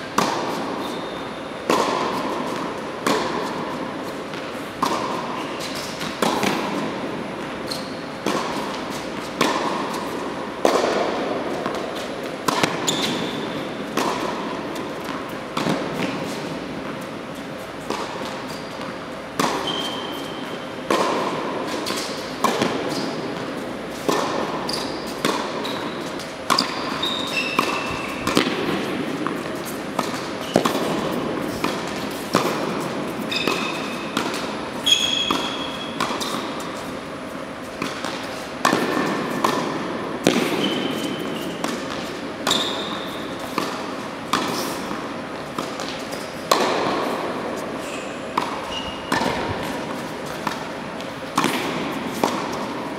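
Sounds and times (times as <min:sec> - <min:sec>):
tennis ball racquet hits: 0:00.0 - 0:52.9
tennis balls bouncing on court: 0:00.0 - 0:52.9
shoe squeaks on court: 0:00.8 - 0:01.5, 0:05.3 - 0:06.0, 0:07.6 - 0:08.2, 0:12.8 - 0:13.6, 0:19.6 - 0:20.7, 0:24.6 - 0:28.4, 0:33.2 - 0:34.2, 0:34.8 - 0:36.3, 0:40.6 - 0:41.6, 0:42.5 - 0:43.4, 0:47.8 - 0:49.4.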